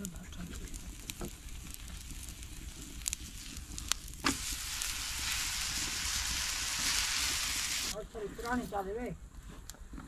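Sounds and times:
butter sizzling on a griddle: 0:00.0 - 0:08.0.

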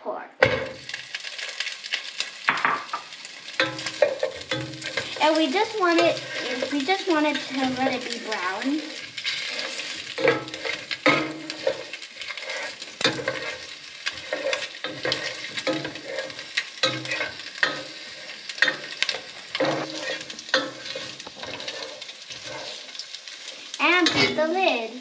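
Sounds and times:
meat sizzling in hot oil: 0:00.4 - 0:25.0
spoon scraping a pot: 0:03.6 - 0:05.2, 0:05.9 - 0:08.1, 0:08.8 - 0:24.4.

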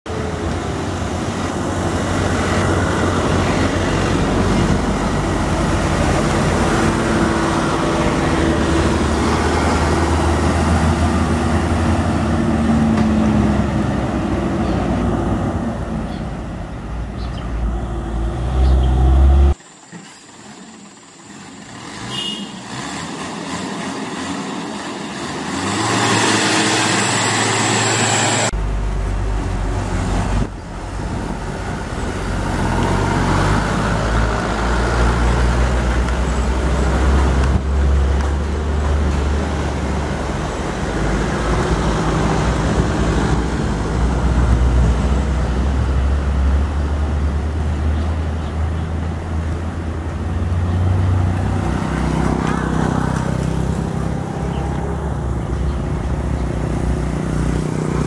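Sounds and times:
road traffic: 0:00.0 - 0:58.0
truck diesel engines labouring: 0:00.0 - 0:58.0.

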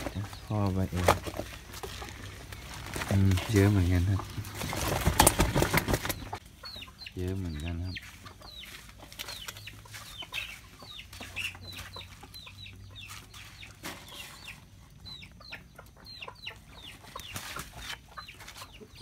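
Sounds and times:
chickens peeping: 0:00.0 - 0:19.0.

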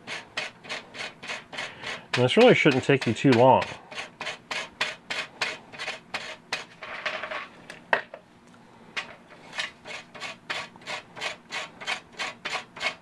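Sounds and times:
knife blade scraping twine: 0:00.0 - 0:06.8, 0:09.4 - 0:13.0.

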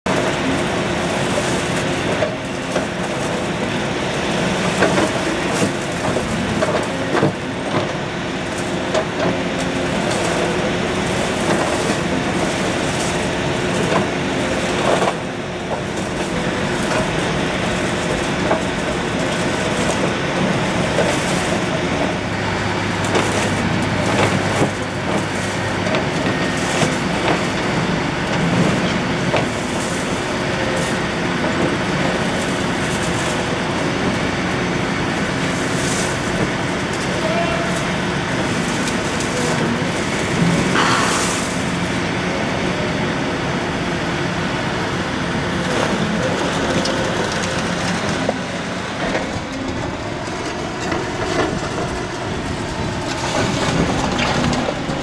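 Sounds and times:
clatter of concrete rubble: 0:00.1 - 0:42.7, 0:44.4 - 0:55.0
excavator diesel engine running: 0:00.1 - 0:55.0.

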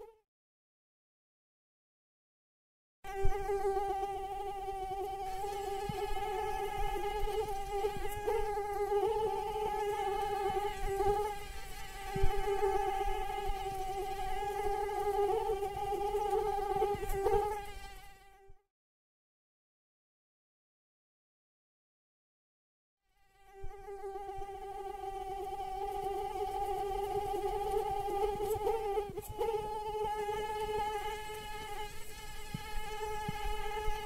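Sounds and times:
mosquito buzzing: 0:00.0 - 0:00.2, 0:03.0 - 0:18.6, 0:23.1 - 0:34.0.

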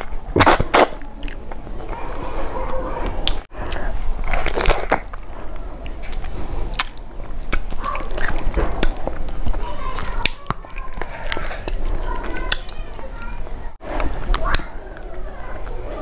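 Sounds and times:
chewing with wet mouth sounds: 0:00.0 - 0:16.0
fingers tearing and squishing fish: 0:03.2 - 0:13.4.

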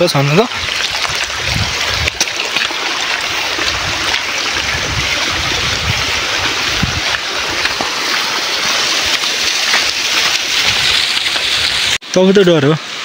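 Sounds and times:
rushing flowing water: 0:00.0 - 0:13.0
dull low bumps: 0:00.6 - 0:08.0.

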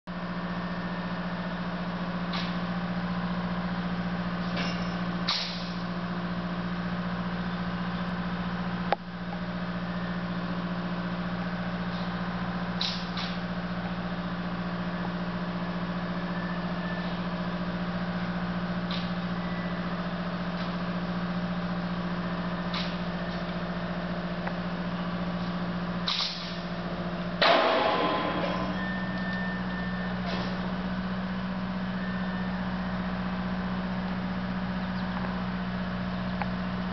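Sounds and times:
heavy machinery engine running: 0:00.1 - 0:36.9
loud noisy burst: 0:27.4 - 0:29.0.

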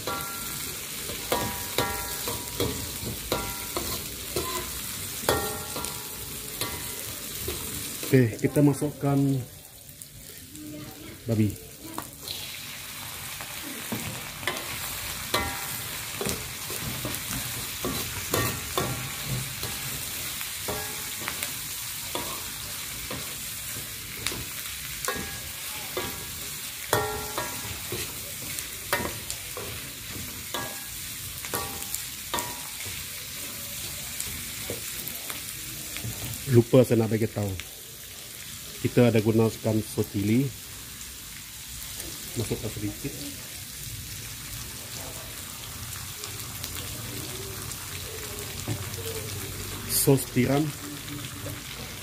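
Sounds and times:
metal ladle clanking against wok: 0:00.0 - 0:04.7, 0:05.3 - 0:07.6, 0:15.4 - 0:20.1, 0:20.7 - 0:21.4, 0:24.2 - 0:33.0
meat sizzling in hot oil: 0:00.0 - 0:52.0.

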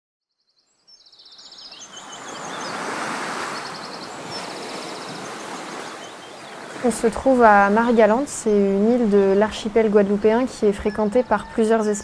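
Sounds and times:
small birds trilling and chirping: 0:00.4 - 0:12.0
waves washing onto beach: 0:01.8 - 0:10.7.

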